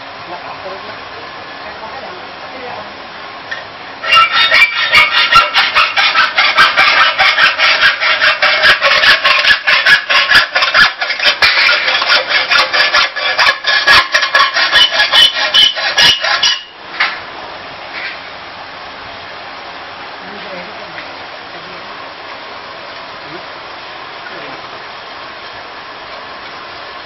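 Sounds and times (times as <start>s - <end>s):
metal scraping and squealing on rollers: 4.0s - 16.8s.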